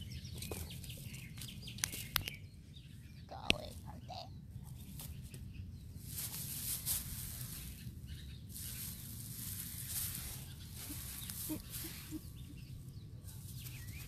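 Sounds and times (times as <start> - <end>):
low outdoor rumble: 0.0 - 14.0
grass rustling: 4.6 - 14.0.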